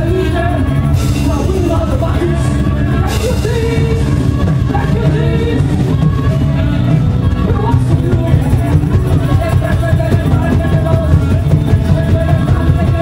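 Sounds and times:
band with bass and drums: 0.0s - 13.0s.

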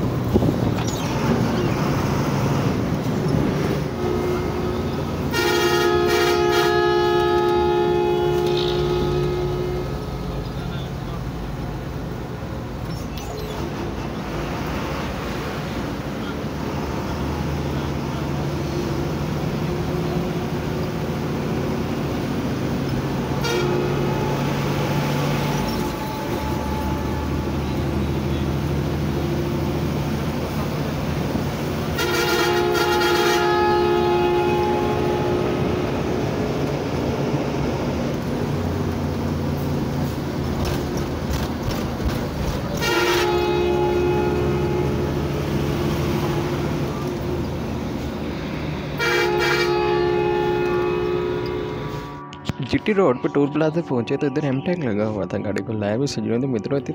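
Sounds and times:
bus engine running: 0.0s - 52.7s
bus horn blasts: 3.8s - 11.0s, 23.1s - 29.6s, 31.8s - 36.6s, 42.7s - 47.6s, 48.9s - 52.6s.

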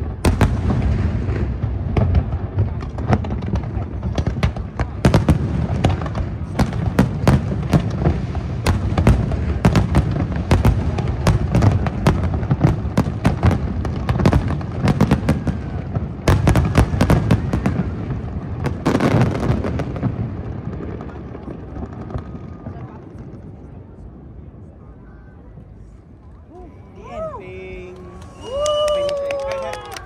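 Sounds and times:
fireworks bangs and crackles: 0.0s - 30.0s.

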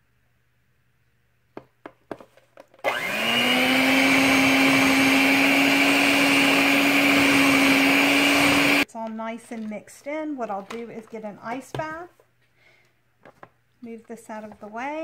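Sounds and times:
stick blender motor whine: 2.8s - 8.8s.

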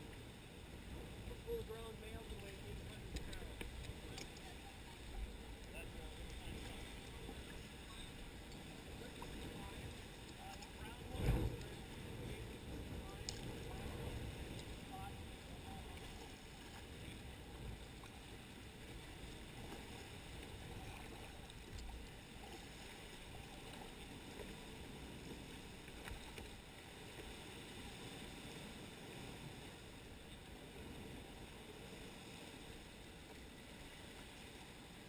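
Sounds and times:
paddle dipping in water: 0.0s - 35.0s
water lapping against hull: 0.0s - 35.0s
light ticks: 3.1s - 4.6s, 10.2s - 10.8s, 13.2s - 13.5s.

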